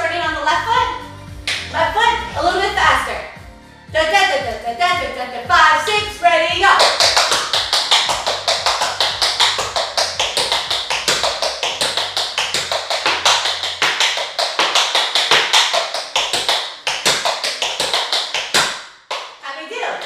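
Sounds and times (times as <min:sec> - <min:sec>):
tap shoes on hard floor: 0:06.6 - 0:20.0.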